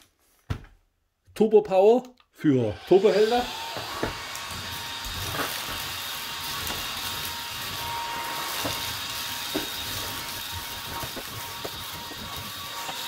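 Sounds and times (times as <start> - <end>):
stick vacuum running: 2.8 - 13.0.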